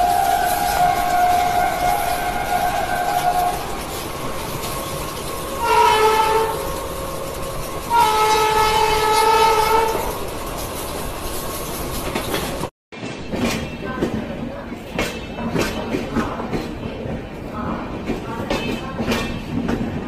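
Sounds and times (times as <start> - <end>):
train running noise: 0.0 - 20.0
train horn blasts: 5.6 - 6.7, 7.9 - 10.1.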